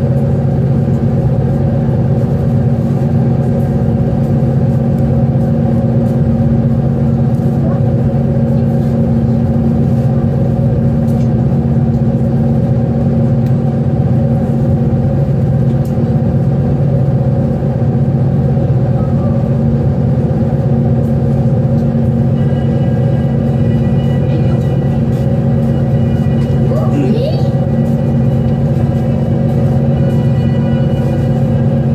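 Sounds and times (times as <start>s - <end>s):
ferry engines rumbling: 0.0s - 31.9s.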